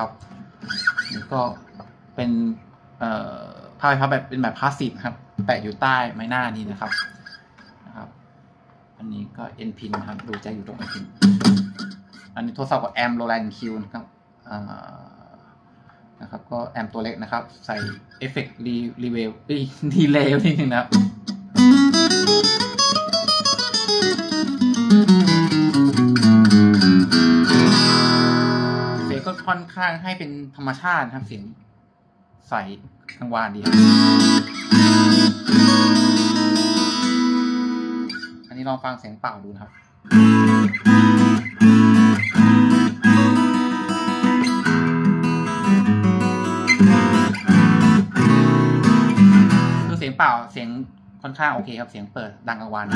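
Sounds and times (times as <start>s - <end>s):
acoustic guitar picked: 9.8s - 12.4s, 20.0s - 29.7s, 33.6s - 38.5s, 39.7s - 50.0s.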